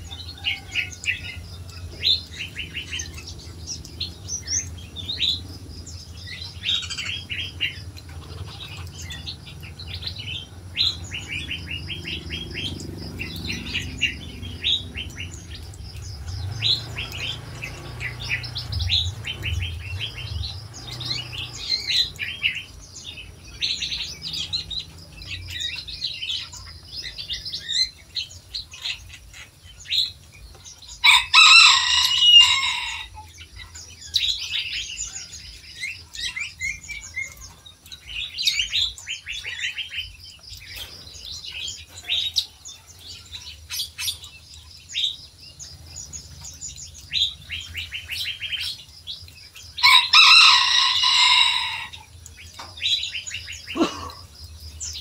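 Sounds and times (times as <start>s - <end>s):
songbirds chirping and twittering: 0.0s - 55.0s
loud long bird calls: 30.9s - 42.5s, 49.7s - 55.0s.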